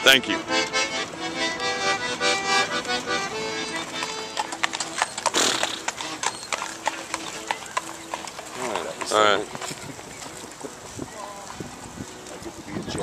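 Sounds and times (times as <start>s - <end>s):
accordion playing a tune: 0.0s - 12.5s
horse hooves clip-clopping on asphalt: 2.7s - 13.0s.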